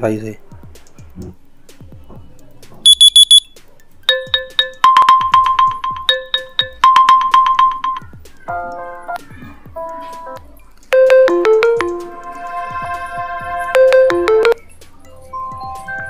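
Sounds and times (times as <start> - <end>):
ringtone melody: 2.9 - 3.5, 4.1 - 8.2, 10.9 - 12.8, 13.7 - 14.6
high beeps: 2.9 - 8.0, 11.0 - 12.1, 13.8 - 14.6
electronic beeping pattern: 2.9 - 8.2, 11.0 - 12.2, 13.8 - 14.6.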